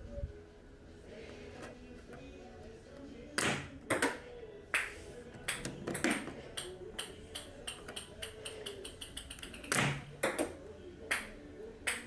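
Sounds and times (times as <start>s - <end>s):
ping-pong ball bouncing: 4.8s - 10.5s, 11.1s - 12.0s.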